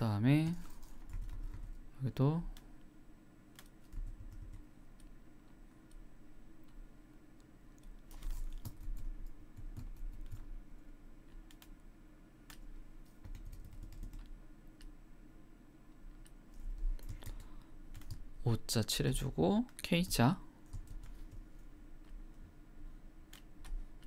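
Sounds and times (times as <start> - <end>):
low steady hum: 0.0 - 24.0
computer keyboard clicks: 0.6 - 1.8, 3.5 - 5.1, 7.8 - 10.5, 11.4 - 11.7, 12.5 - 14.9, 17.0 - 18.2, 20.7 - 21.4.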